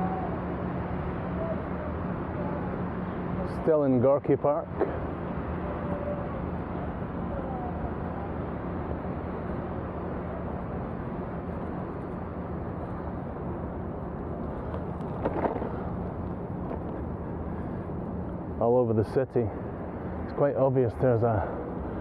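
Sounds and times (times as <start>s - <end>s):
faint voice: 1.3s - 2.8s, 7.2s - 8.4s
bicycle riding rushing noise: 11.5s - 18.7s.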